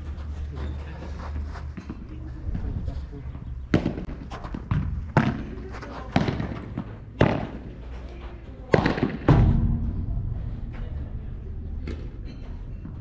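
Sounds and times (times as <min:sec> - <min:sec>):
ball bouncing off court and walls: 0:03.7 - 0:07.8, 0:08.6 - 0:09.8.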